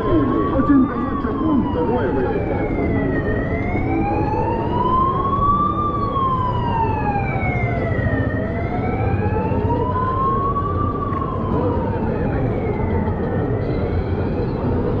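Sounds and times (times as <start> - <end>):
busy street crowd noise: 0.0 - 15.0
emergency siren wailing: 0.0 - 15.0.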